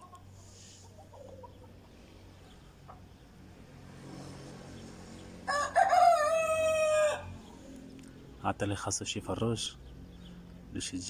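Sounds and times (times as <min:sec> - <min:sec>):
rooster crowing: 0:05.4 - 0:07.5.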